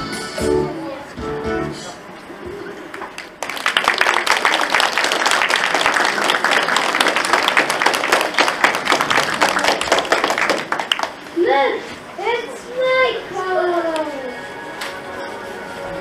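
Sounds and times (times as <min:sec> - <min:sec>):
audience applause: 0:02.8 - 0:11.2.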